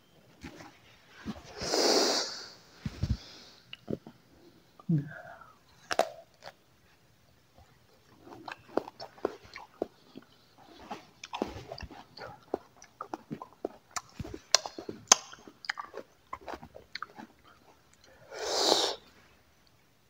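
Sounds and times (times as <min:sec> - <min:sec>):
wet mouth clicks: 0:03.7 - 0:04.2, 0:08.3 - 0:10.4, 0:11.2 - 0:19.0
crisp apple chewing crunches: 0:05.8 - 0:06.6, 0:07.6 - 0:18.2.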